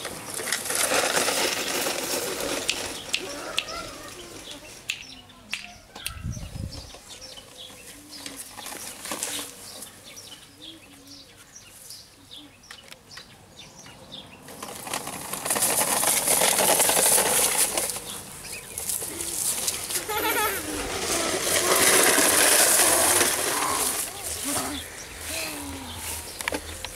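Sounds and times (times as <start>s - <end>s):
small birds chirping: 2.5s - 14.6s, 17.9s - 20.5s, 23.2s - 26.9s
loud rustling hiss: 15.5s - 26.9s.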